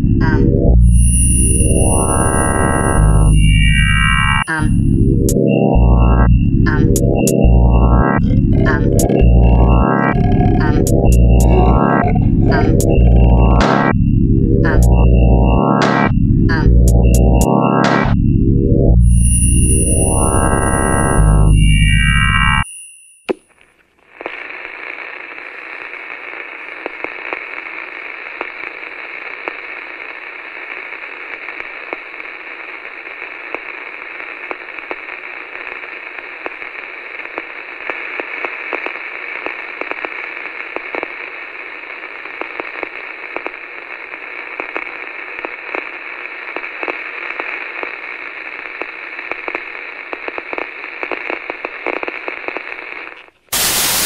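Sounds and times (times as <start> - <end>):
radio static hiss with crackles: 0.0 - 18.1, 19.3 - 22.6, 23.9 - 54.0
burst of white noise: 53.5 - 54.0.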